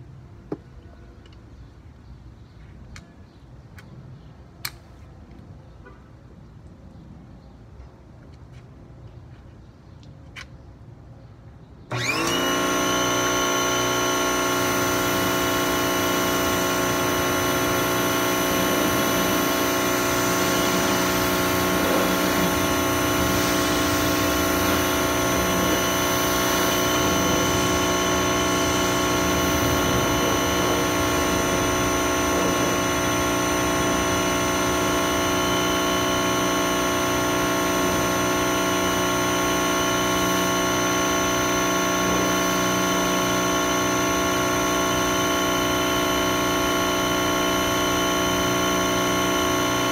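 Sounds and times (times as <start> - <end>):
pressure washer motor running: 11.9 - 49.9
water jet hissing: 16.9 - 35.3.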